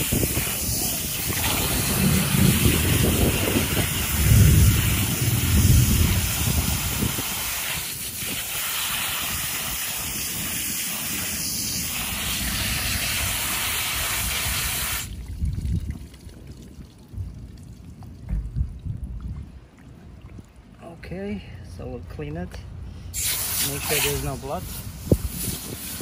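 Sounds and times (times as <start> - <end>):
hose nozzle spraying water: 0.0 - 15.2, 23.1 - 26.0
water splashing: 0.0 - 20.8.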